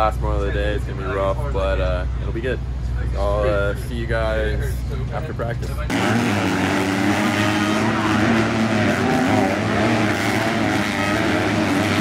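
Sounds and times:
dirt bike engine revving: 5.9s - 12.0s.

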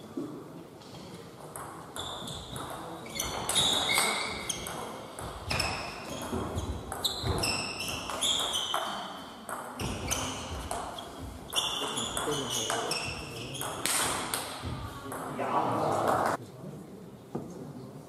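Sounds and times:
table tennis balls pinging: 1.4s - 16.4s
murmur of voices: 8.8s - 18.0s.

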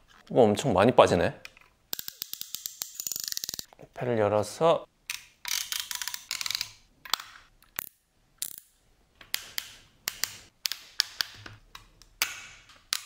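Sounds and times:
plastic parts clicking and knocking: 1.4s - 3.7s, 5.1s - 13.0s
ratchet clicks of toy figure: 1.9s - 3.7s, 5.4s - 6.8s.

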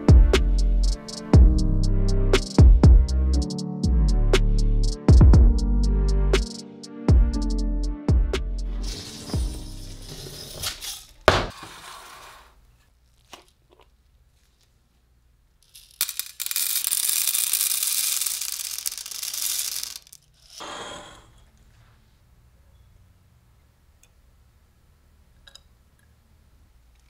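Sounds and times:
popcorn kernels rattling on metal: 15.6s - 20.6s.

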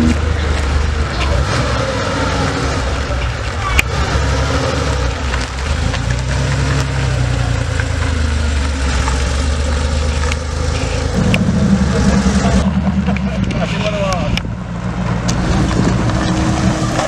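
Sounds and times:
another car engine: 0.0s - 17.0s
car engine at low revs: 0.0s - 17.0s
tyres crunching on gravel: 4.9s - 14.5s.

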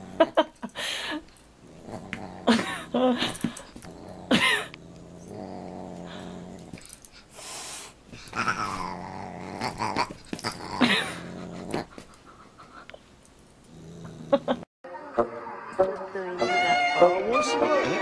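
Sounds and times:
dog growling: 0.0s - 0.5s, 1.6s - 7.2s, 8.2s - 12.7s, 13.6s - 14.7s.

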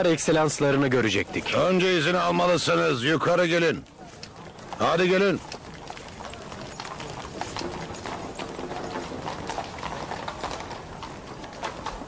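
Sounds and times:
murmur of distant voices: 0.0s - 12.0s
clip-clop steps on hard ground: 3.8s - 12.0s.

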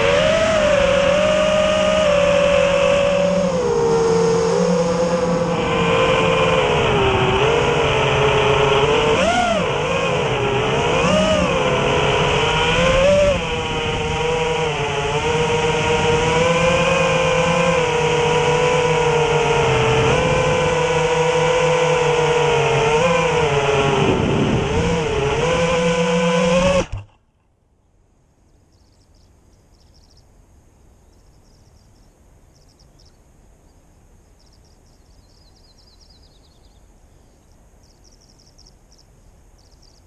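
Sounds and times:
drone motors whining: 0.0s - 27.2s.

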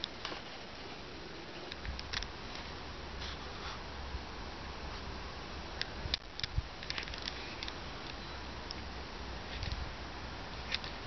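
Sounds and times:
low hum and hiss: 0.0s - 11.0s
camera handling clicks and rustles: 6.2s - 8.2s.

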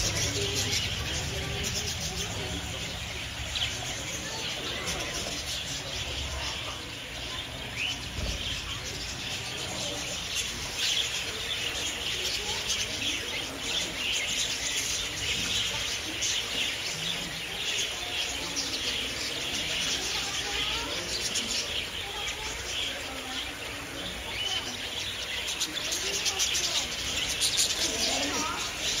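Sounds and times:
many birds chirping: 0.0s - 29.0s.

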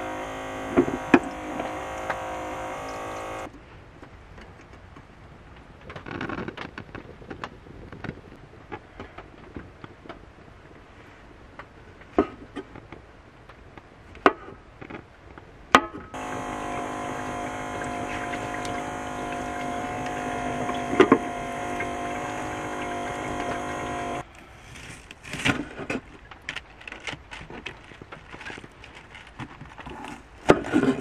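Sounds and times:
electric water pump humming: 0.0s - 3.5s, 16.2s - 24.4s
water running from faucet: 0.0s - 3.5s, 16.2s - 24.2s.

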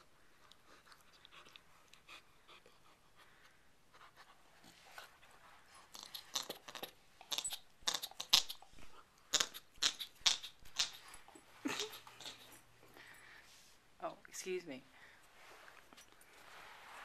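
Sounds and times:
puppy chewing with teeth clicks: 0.3s - 2.8s, 5.9s - 12.5s.

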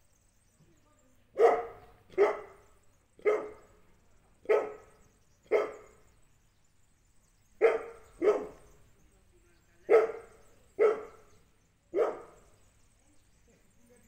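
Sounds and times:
dog barking: 1.4s - 3.7s, 4.4s - 6.0s, 7.6s - 8.7s, 9.9s - 11.3s, 11.9s - 12.4s.

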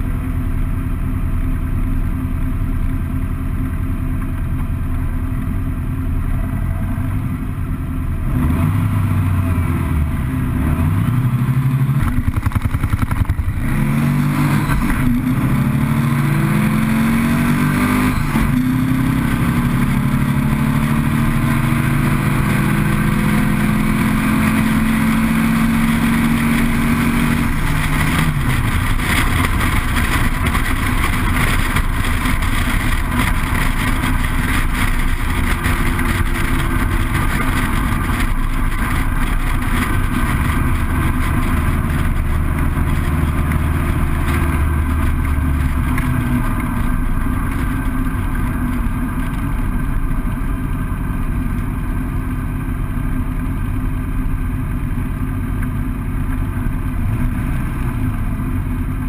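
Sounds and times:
dune buggy engine racing: 5.2s - 59.0s
rush of wind noise: 12.0s - 49.9s.

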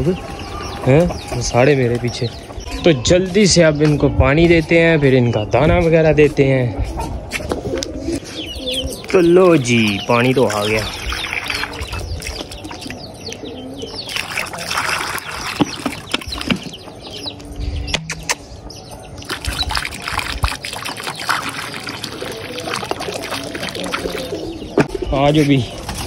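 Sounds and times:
pigeons calling: 0.0s - 26.0s
water pouring into clay pot: 9.5s - 13.0s, 14.0s - 16.8s, 19.2s - 24.4s.

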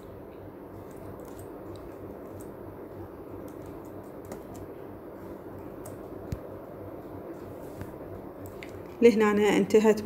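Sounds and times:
low background hum: 0.0s - 10.0s.

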